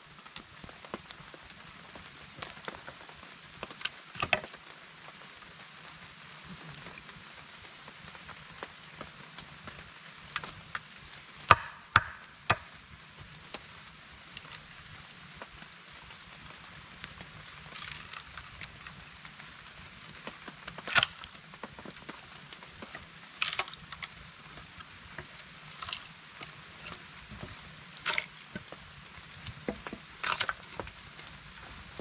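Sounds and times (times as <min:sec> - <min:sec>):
axe splitting wood: 0:11.5 - 0:12.7, 0:17.7 - 0:18.5, 0:20.9 - 0:21.3, 0:23.4 - 0:24.1, 0:25.7 - 0:26.1, 0:28.0 - 0:28.6, 0:29.7 - 0:30.9.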